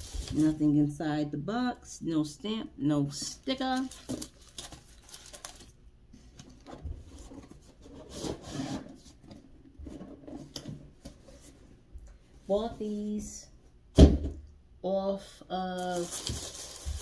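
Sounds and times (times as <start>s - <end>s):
wrapping paper rustling: 0.0s - 0.7s, 3.2s - 5.8s, 15.8s - 17.0s
cardboard rubbing and scraping: 7.0s - 9.2s.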